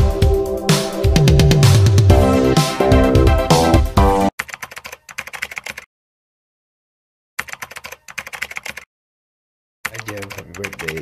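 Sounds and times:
electronic music: 0.0s - 4.3s
keyboard typing clicks: 4.4s - 5.9s, 7.4s - 8.9s, 9.9s - 11.0s.

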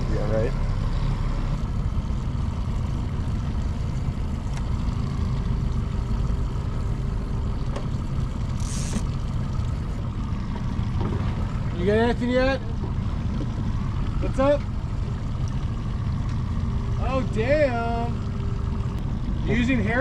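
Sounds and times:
outboard motor droning: 0.0s - 20.0s.

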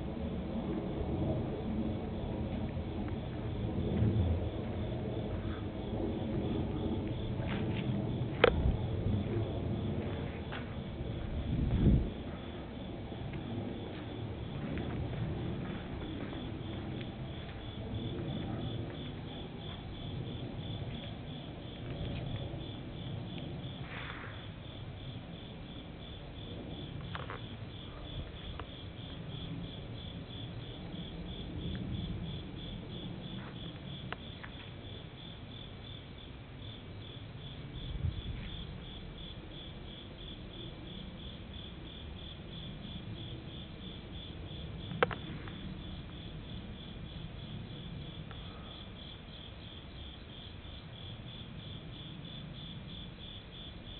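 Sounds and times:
low rumble: 0.0s - 24.6s
night insects chirping: 0.0s - 53.9s.

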